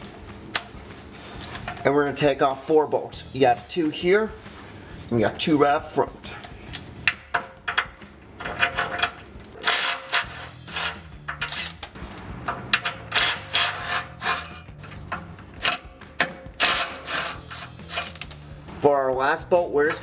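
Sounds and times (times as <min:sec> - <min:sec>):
impact wrench rattling bursts: 0:06.3 - 0:18.8
metal clinks: 0:17.4 - 0:18.8.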